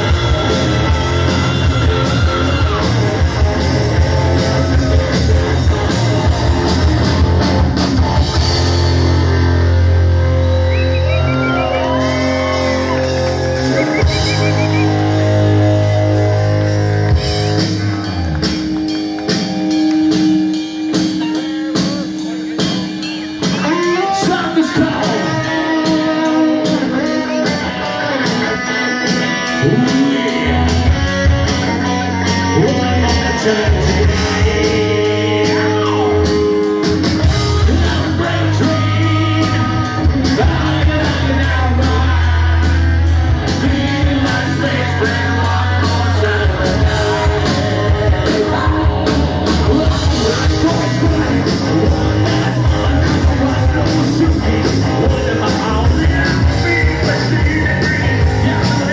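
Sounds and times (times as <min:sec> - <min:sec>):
bass guitar: 0:00.0 - 0:58.9
drums and cymbals: 0:00.0 - 0:58.9
electric guitar: 0:00.0 - 0:58.9
person singing: 0:20.9 - 0:58.9.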